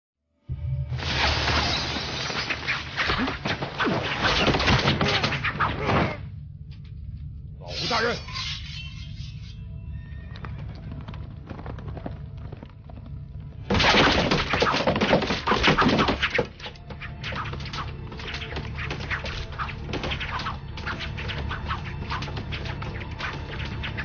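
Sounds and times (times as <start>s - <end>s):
background music: 0.3s - 24.0s
arrows striking wooden boards: 13.7s - 24.0s.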